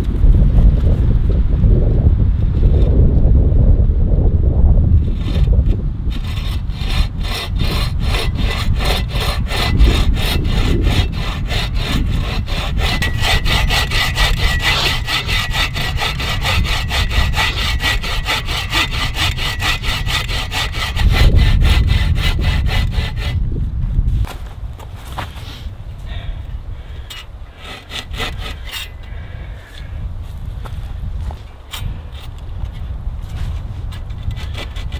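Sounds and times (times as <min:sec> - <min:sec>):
bow saw cutting log: 0:05.0 - 0:23.4, 0:27.0 - 0:29.1, 0:33.4 - 0:34.9.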